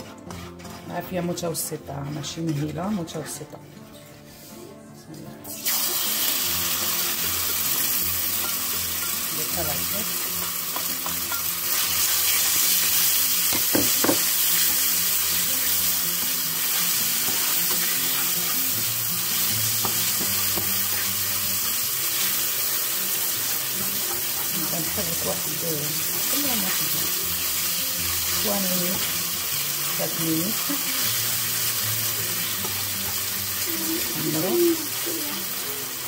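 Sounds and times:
chicken sizzling in hot oil: 0:05.6 - 0:36.0
utensil knocking against pan: 0:13.5 - 0:14.4.

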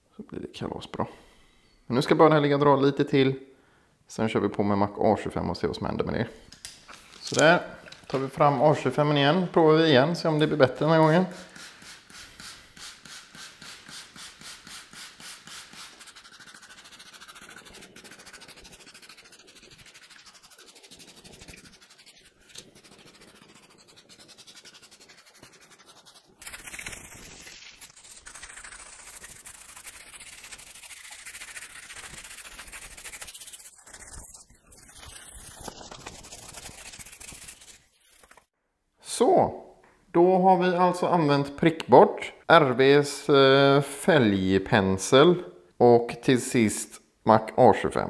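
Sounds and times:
spray bottle squirting: 0:11.3 - 0:16.8, 0:26.4 - 0:38.5.

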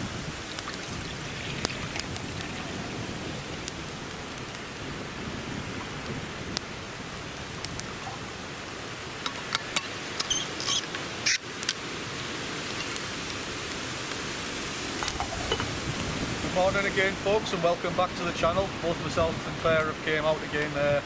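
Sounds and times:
background hiss: 0:00.0 - 0:21.0
metal pots clinking and scraping: 0:15.0 - 0:15.8.

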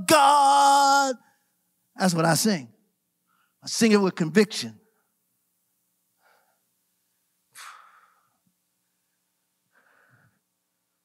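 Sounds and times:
faint electrical hum: 0:00.0 - 0:11.0
breaths into microphone: 0:07.5 - 0:08.5, 0:09.7 - 0:10.5.

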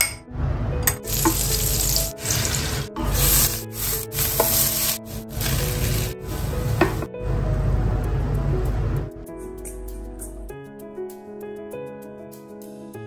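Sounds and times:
soft background music: 0:00.0 - 0:13.0
food sizzling in frying pan: 0:01.0 - 0:07.0.

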